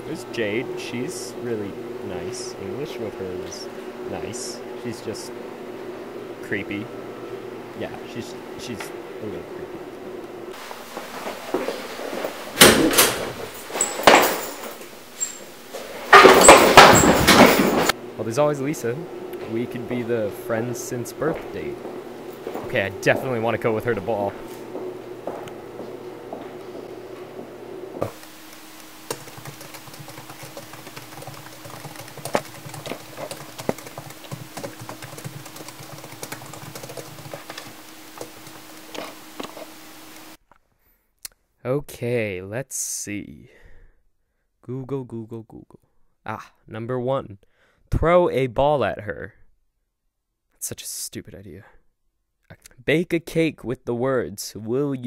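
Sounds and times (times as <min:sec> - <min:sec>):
steady low hum: 0:00.0 - 0:40.4
laptop keyboard typing: 0:28.2 - 0:39.6.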